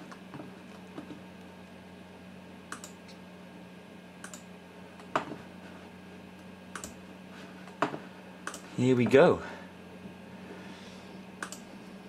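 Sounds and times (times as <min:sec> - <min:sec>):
steady low hum: 0:00.0 - 0:12.0
computer mouse button clicking: 0:11.4 - 0:11.6.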